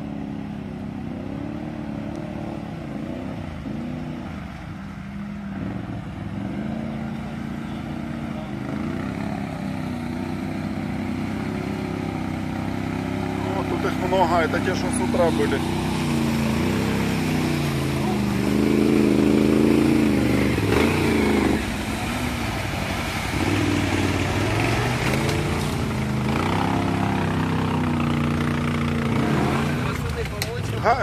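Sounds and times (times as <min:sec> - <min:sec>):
off-road engine revving: 0:00.0 - 0:31.0.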